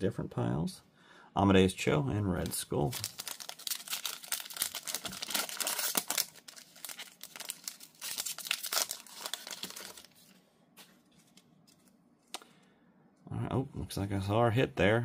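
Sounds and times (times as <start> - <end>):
wrapper tearing and crinkling: 2.8 - 10.2.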